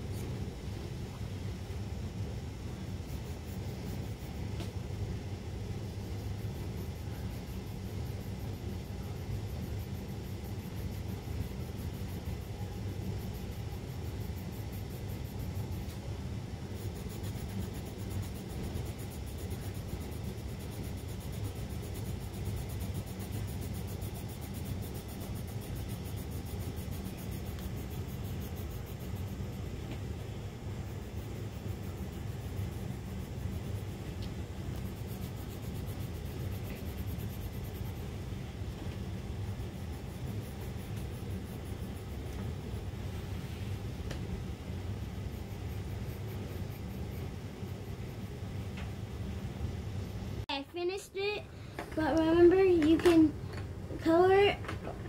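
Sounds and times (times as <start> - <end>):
steady low rumble: 0.0 - 55.0
pencil shading on paper: 5.6 - 43.8, 44.9 - 48.3.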